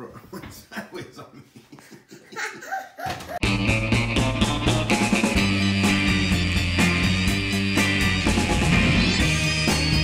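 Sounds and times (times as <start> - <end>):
rock music with drum beat: 3.4 - 10.0.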